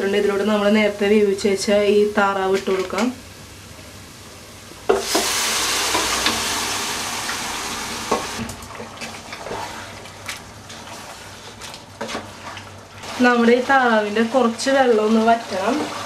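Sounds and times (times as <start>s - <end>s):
food sizzling in oil: 4.8s - 16.0s.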